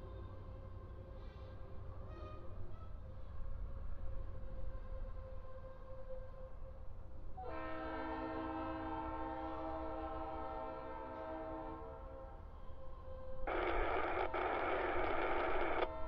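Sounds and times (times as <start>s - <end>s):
locomotive air horn chord: 7.4s - 12.5s.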